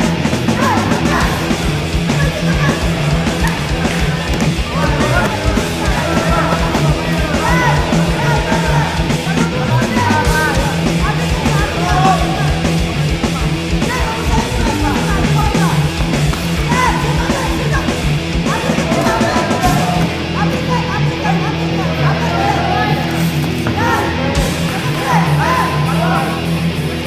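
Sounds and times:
loud rock music: 0.0s - 27.0s.

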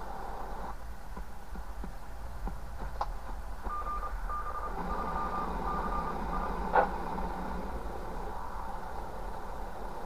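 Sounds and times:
radio receiver hiss: 0.0s - 1.0s, 2.9s - 10.0s
whistle-like tone beeping: 3.7s - 6.5s.

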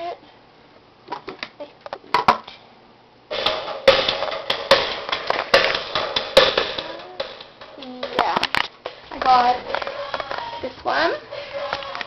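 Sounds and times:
loud music with strong beats: 3.3s - 8.3s.

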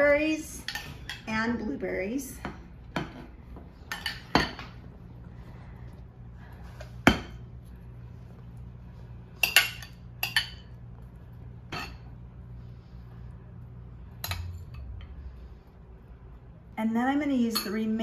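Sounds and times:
low steady hum: 0.0s - 18.0s
metal spoon clinking on glass: 17.5s - 17.9s.

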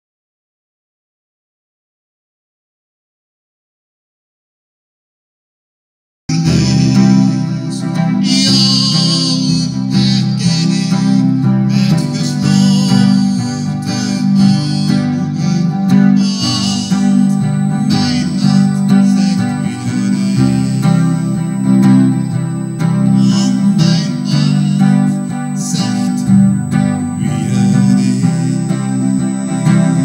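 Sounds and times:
instrumental guitar music: 6.3s - 30.0s.

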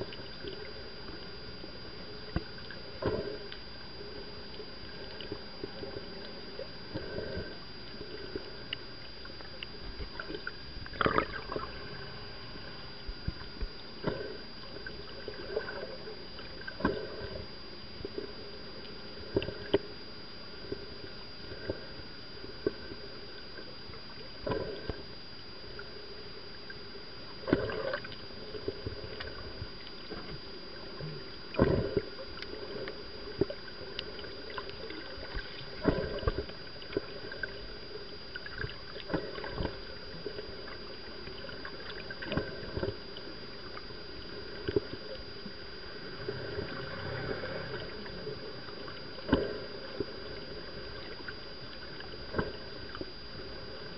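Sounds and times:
faint high whine: 0.0s - 53.9s
muffled underwater water noise: 0.0s - 53.9s
underwater knocks and thumps: 13.0s - 15.8s, 27.4s - 37.7s, 47.7s - 53.2s.

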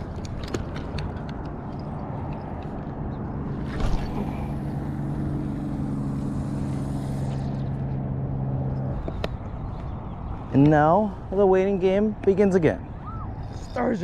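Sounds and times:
motorboat engine droning: 0.0s - 10.3s.

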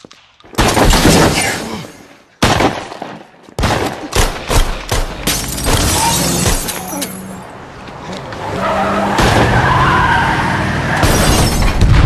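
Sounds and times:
gunshots: 0.5s - 1.8s, 2.4s - 6.7s.

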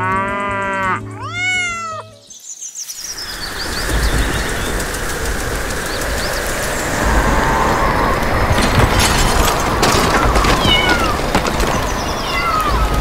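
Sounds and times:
steady rushing background: 2.9s - 13.0s.

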